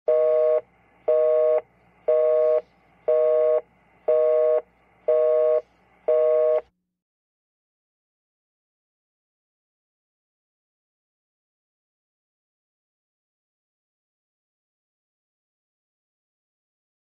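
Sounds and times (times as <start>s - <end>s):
phone busy signal beeps: 0.1s - 6.7s.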